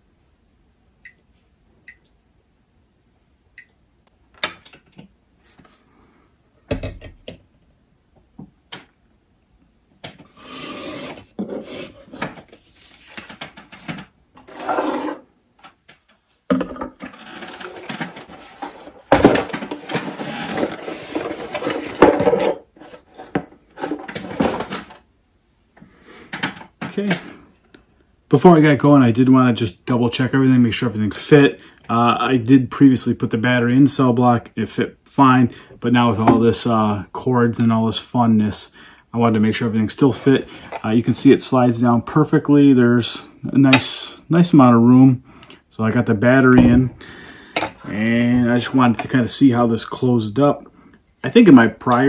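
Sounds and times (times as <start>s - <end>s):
plastic scraping and rubbing: 10.1s - 15.8s, 16.9s - 25.0s.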